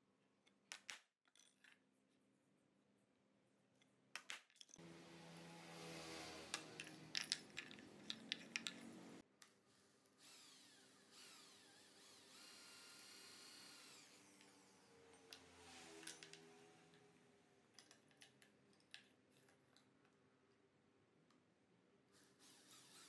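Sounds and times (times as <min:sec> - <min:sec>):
electric drill boring steel: 0:04.8 - 0:09.2, 0:10.2 - 0:16.4, 0:22.1 - 0:23.0.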